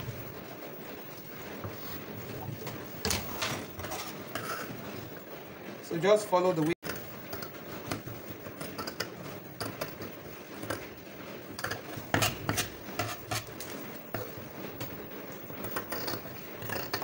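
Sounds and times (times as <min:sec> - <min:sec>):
tools tapping and scraping paper: 0:06.8 - 0:17.0.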